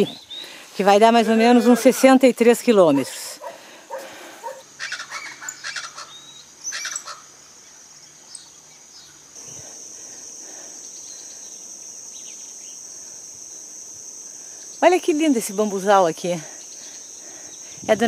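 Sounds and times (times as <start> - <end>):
insect chirring: 0.0 - 18.0
chickens clucking: 3.4 - 4.6.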